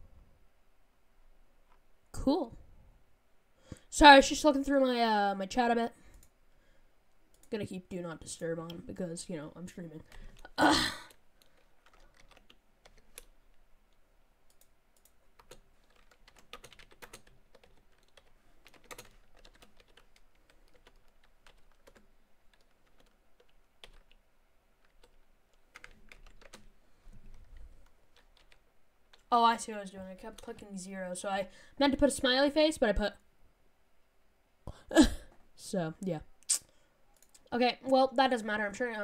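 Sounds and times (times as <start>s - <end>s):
computer keyboard typing: 11.1s - 13.4s, 14.5s - 24.2s, 24.8s - 26.7s, 28.1s - 29.3s, 30.1s - 30.6s.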